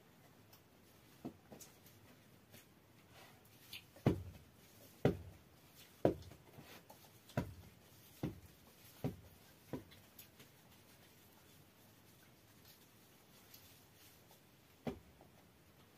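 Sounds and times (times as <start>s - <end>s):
dough thumping on cloth: 4.0s - 6.4s, 7.2s - 10.0s, 14.8s - 15.2s.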